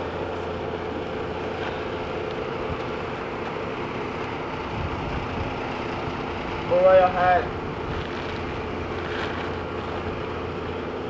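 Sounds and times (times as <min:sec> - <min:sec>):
steady mechanical drone: 0:00.0 - 0:11.0.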